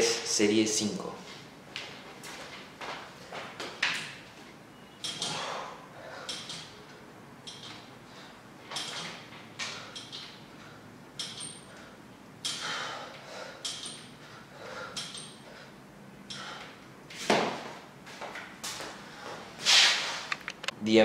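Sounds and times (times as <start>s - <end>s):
pull-up bar squeaking: 3.8s - 16.7s
man breathing sharply: 5.2s - 6.5s, 11.6s - 16.8s.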